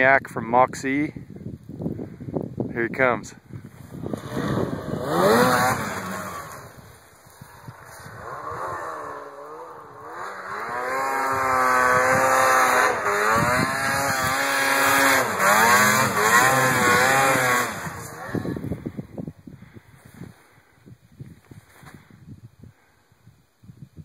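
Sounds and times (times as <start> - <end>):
snowmobile engine revving: 4.0 - 18.8.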